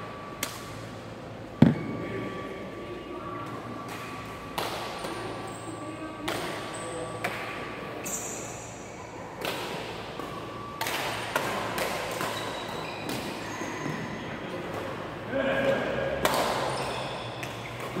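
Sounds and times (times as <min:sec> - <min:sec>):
rackets smacking shuttlecocks: 0:06.2 - 0:07.7, 0:09.4 - 0:13.4, 0:16.2 - 0:18.0.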